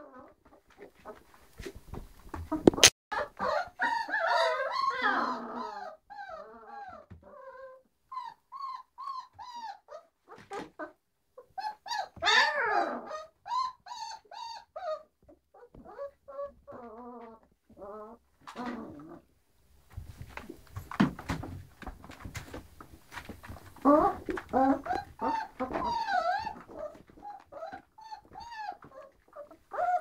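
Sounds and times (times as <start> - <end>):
puppies whining and squealing: 3.2 - 10.6, 11.5 - 18.2, 23.2 - 30.0.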